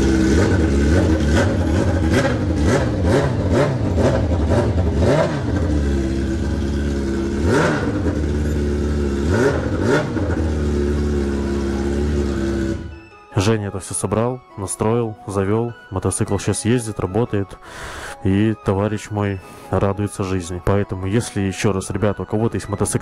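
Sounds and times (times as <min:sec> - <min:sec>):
motorcycle engine revving: 0:00.0 - 0:13.1.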